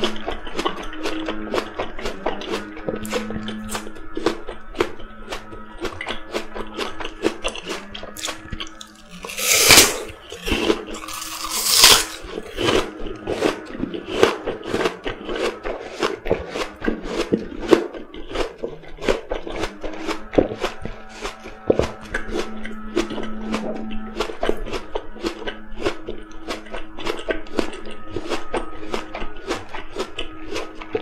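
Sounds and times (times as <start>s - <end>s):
apple crunch: 0.0s - 23.2s
moist chewing: 0.0s - 31.0s.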